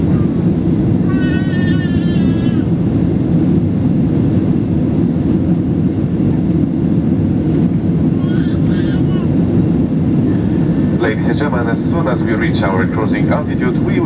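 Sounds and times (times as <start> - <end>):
airplane cabin rumble: 0.0 - 14.0.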